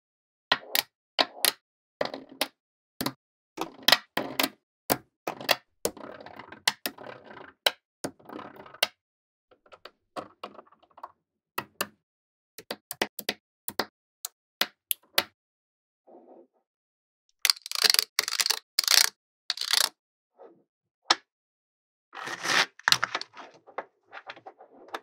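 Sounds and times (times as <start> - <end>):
magnetic balls clicking together: 17.5 - 19.9.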